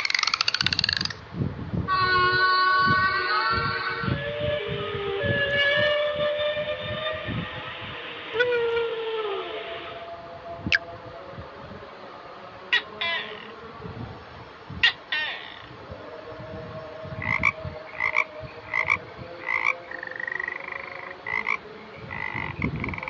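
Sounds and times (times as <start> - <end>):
frog croaking: 0.0 - 1.2, 17.2 - 23.0
gecko chirping and rattling: 0.0 - 1.2.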